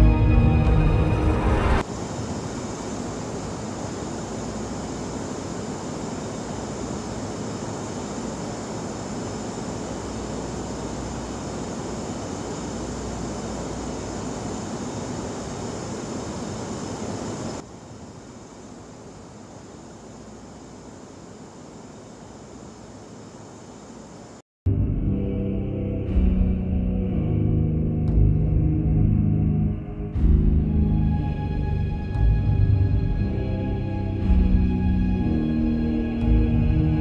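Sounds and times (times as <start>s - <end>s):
electric fan whooshing hum: 1.8s - 24.4s.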